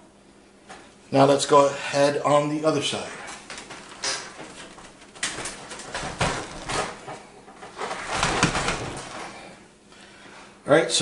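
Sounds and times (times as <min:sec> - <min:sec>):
computer case scraping and knocking: 0:03.5 - 0:09.4.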